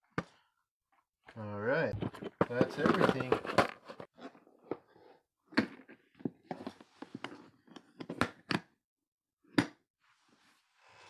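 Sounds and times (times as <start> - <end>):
plastic clacks and knocks: 2.0 - 4.8.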